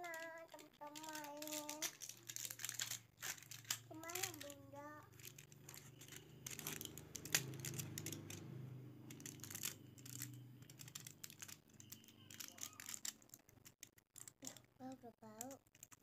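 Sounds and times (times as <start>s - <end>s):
plastic packaging crinkling: 0.0s - 16.0s.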